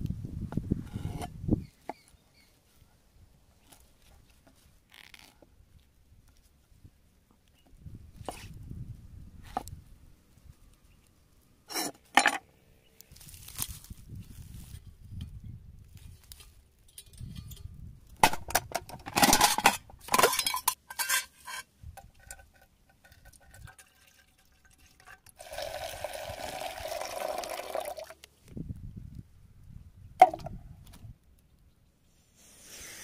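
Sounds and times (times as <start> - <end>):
liquid pouring into metal tin: 23.1 - 28.1.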